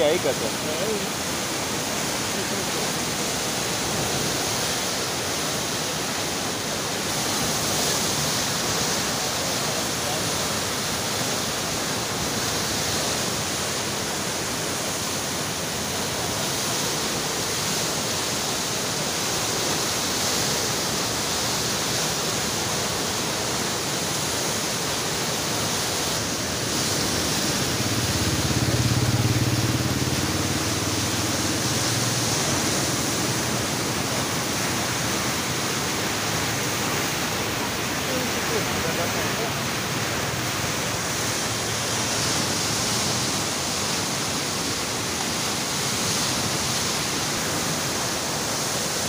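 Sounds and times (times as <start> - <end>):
floodwater rushing: 0.0 - 49.0
low hum: 27.1 - 33.6.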